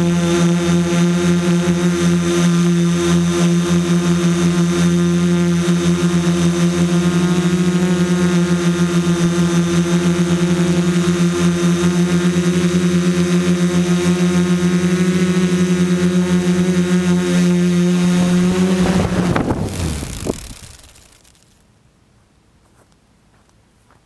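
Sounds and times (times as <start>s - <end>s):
drone motors droning: 0.0s - 21.6s.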